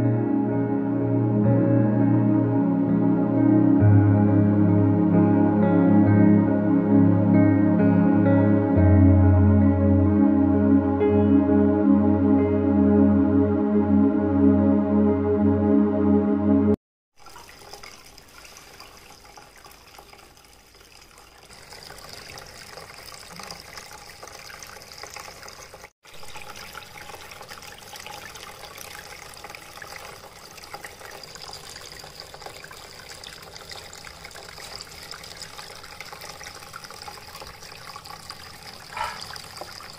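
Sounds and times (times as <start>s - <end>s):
water trickling in fountain: 17.2s - 39.9s.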